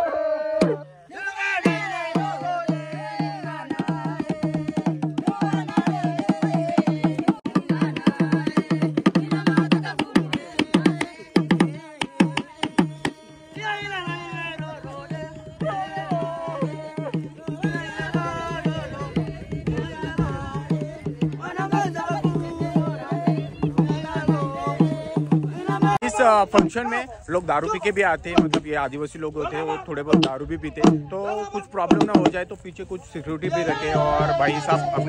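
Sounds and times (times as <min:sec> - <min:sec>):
women singing: 0:00.0 - 0:26.0
fast drumming: 0:00.5 - 0:26.9, 0:27.6 - 0:28.9, 0:30.0 - 0:32.6.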